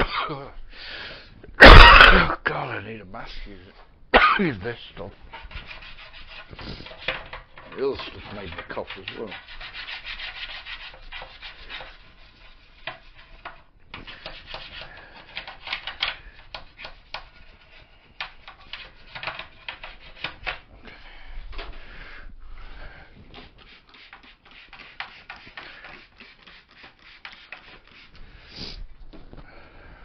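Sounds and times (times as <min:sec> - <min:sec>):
scrubbing and rubbing strokes: 0:04.8 - 0:20.8, 0:21.8 - 0:29.7.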